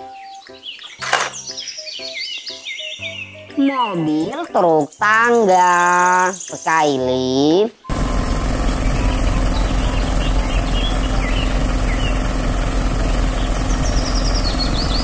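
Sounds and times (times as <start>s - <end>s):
birds chirping: 0.0s - 15.0s
truck engine idling: 7.9s - 15.0s.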